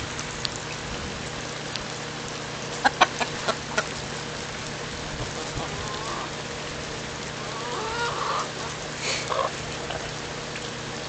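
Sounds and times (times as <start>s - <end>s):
steady rain: 0.0s - 11.0s
chickens pecking at corn: 2.6s - 6.5s, 7.4s - 11.0s.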